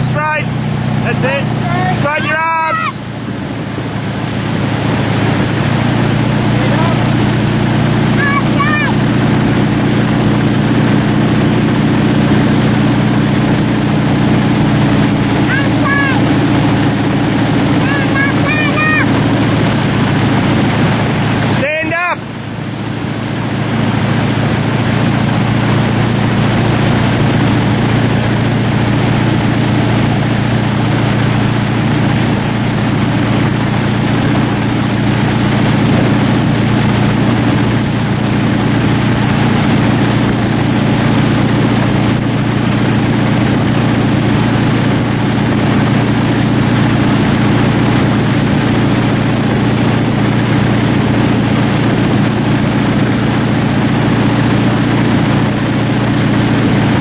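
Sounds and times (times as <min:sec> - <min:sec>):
boat engine humming: 0:00.0 - 0:57.0
rushing water: 0:00.0 - 0:57.0.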